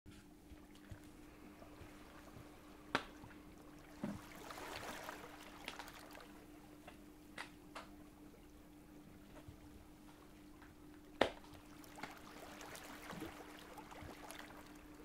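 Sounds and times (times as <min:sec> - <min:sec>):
faint steady hum: 0:00.1 - 0:15.0.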